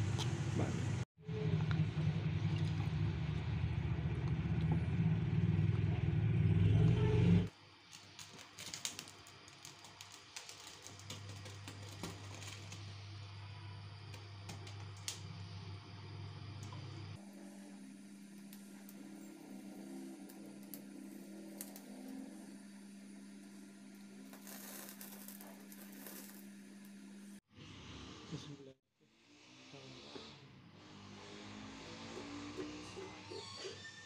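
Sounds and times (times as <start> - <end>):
feathers crackling over flame: 7.7 - 13.0, 24.1 - 26.9.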